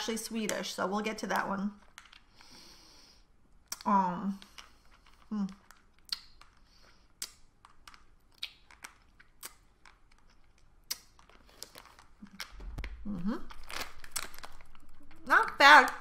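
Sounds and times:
hard candy clicking on teeth: 3.6 - 12.9.

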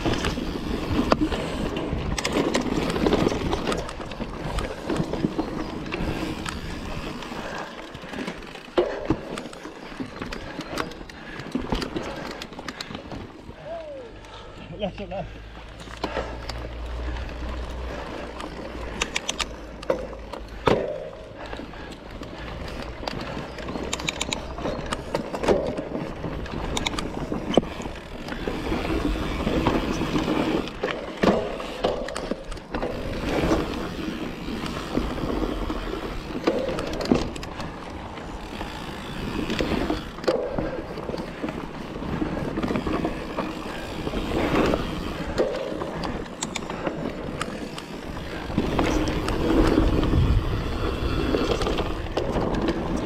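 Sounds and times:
bike rattling over bumps: 0.0 - 53.0
bike tyres rolling on dirt: 0.0 - 53.0
wind rumble on microphone: 48.4 - 53.0.

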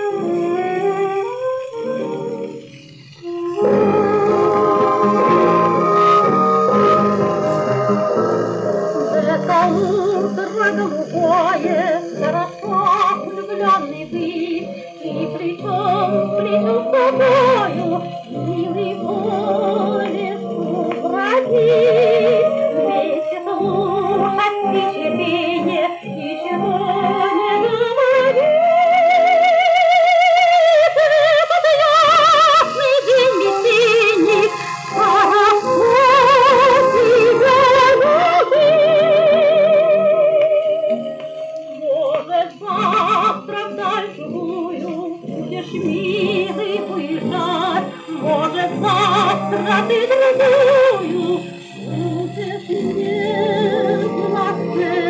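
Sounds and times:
jazz orchestra: 0.0 - 29.1
woman singing operatically: 0.0 - 55.0.

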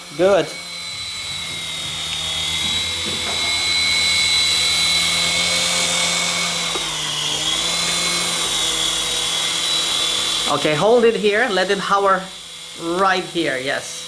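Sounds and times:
rotor blades whirring: 0.0 - 14.0
toy helicopter motors whining: 0.0 - 14.0.

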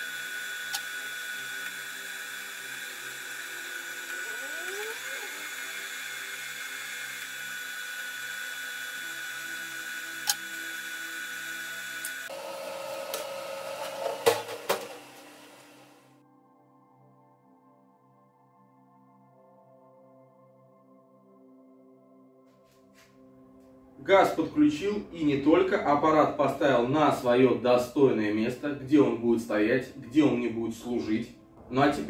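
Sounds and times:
wire-feed motor whining: 0.0 - 16.2.

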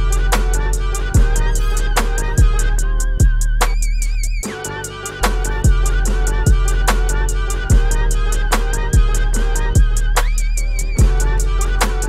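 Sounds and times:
deep kick drums: 0.0 - 4.4, 5.2 - 12.0
fast hi-hat: 0.0 - 12.0.

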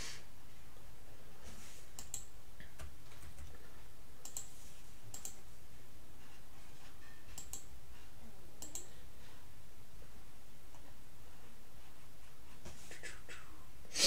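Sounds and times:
low room hum: 0.0 - 14.0
computer mouse clicking: 1.9 - 3.6, 4.2 - 4.5, 5.1 - 5.4, 7.4 - 7.7, 8.6 - 8.9.

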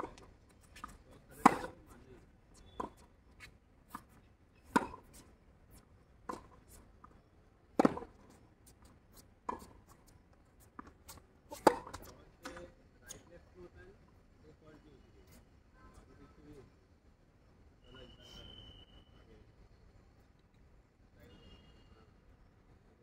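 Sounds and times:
rackets hitting tennis ball: 0.8 - 1.8, 4.6 - 5.2, 7.8 - 8.2, 10.8 - 12.6.

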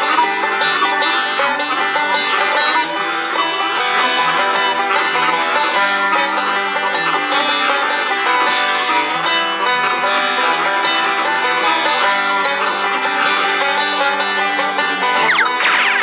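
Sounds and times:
banjo picking a tune: 0.0 - 16.0
harmonica notes: 0.0 - 16.0
gliding high tones: 15.2 - 16.0.

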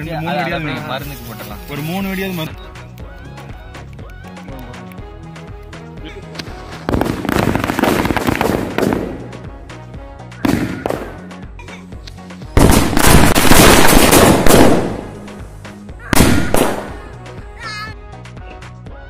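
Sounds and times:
background music: 0.0 - 19.0
firecracker bangs: 6.9 - 9.3, 10.4 - 11.2, 12.6 - 15.3, 16.1 - 17.0.

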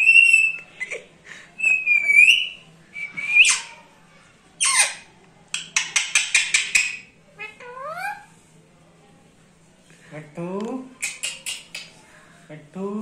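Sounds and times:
parakeet whistling: 1.6 - 3.8.

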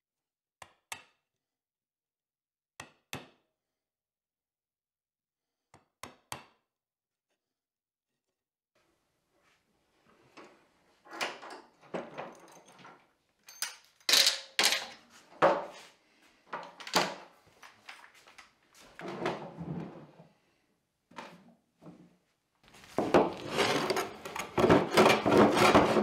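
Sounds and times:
wooden top scraping on workbench: 22.8 - 26.0.

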